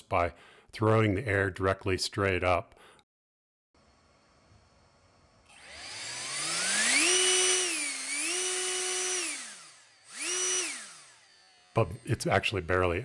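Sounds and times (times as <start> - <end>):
electric fan whine: 5.5 - 12.6.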